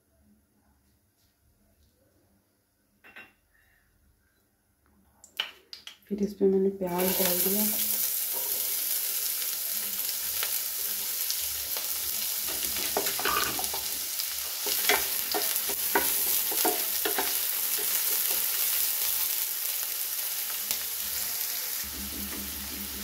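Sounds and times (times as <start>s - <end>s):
onions sizzling in oil: 6.8s - 23.0s.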